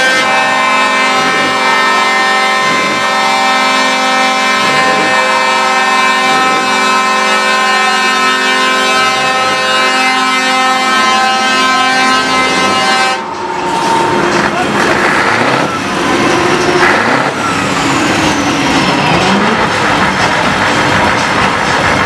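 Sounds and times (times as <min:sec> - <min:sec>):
diesel truck engine revving: 0:00.0 - 0:22.0
truck air horns chord: 0:00.0 - 0:22.0.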